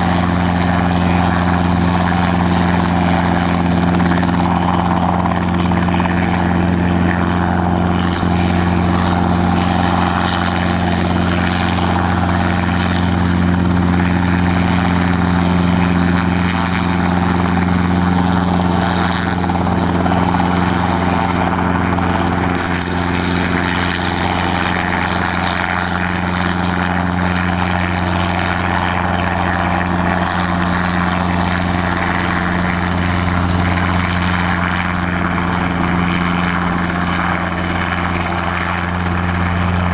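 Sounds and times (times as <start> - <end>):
helicopter hovering: 0.0 - 39.9.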